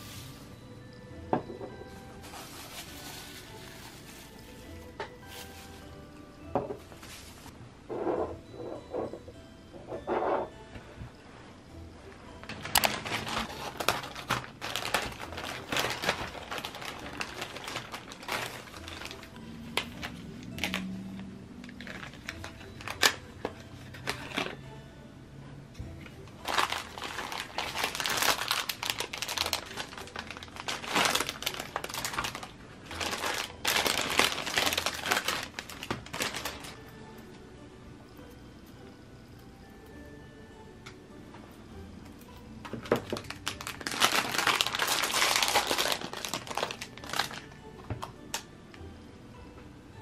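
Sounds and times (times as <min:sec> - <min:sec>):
plastic packaging crinkling: 0:01.8 - 0:06.0, 0:06.8 - 0:07.5, 0:12.4 - 0:21.0, 0:21.6 - 0:24.6, 0:26.4 - 0:36.8, 0:42.8 - 0:47.6.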